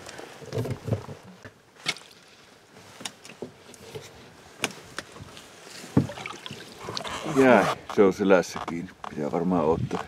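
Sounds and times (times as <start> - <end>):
knocks and clunks in a boat: 5.9 - 7.2.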